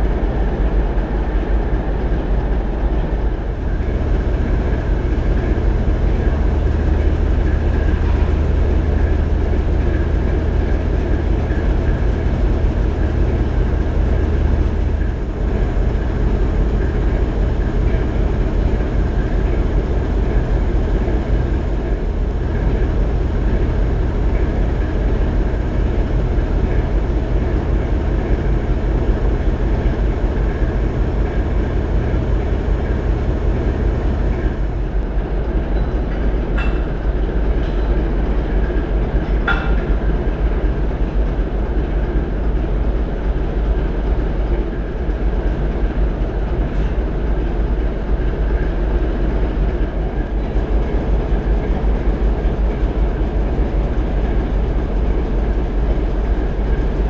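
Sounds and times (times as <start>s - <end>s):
diesel engine rumbling: 0.0s - 35.6s.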